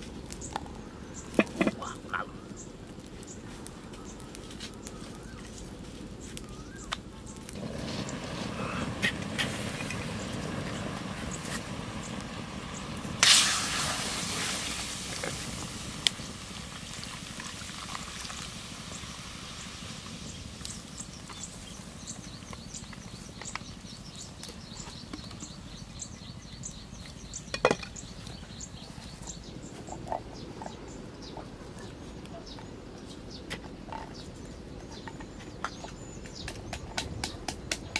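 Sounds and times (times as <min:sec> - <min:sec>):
splash: 0:13.1 - 0:15.8.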